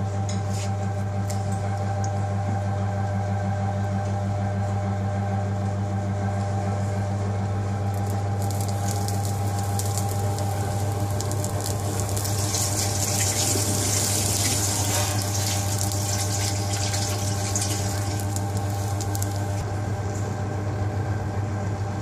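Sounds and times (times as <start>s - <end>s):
steady low hum: 0.0s - 22.0s
prawns sizzling and crackling: 7.9s - 19.7s.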